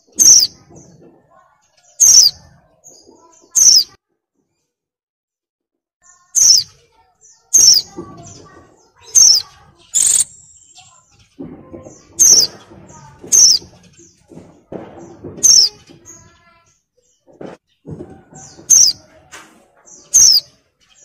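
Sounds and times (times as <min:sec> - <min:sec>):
bird sharp high calls: 0:00.0 - 0:00.6, 0:01.9 - 0:02.6, 0:03.2 - 0:04.0, 0:06.1 - 0:11.1, 0:18.4 - 0:19.0, 0:19.9 - 0:21.0.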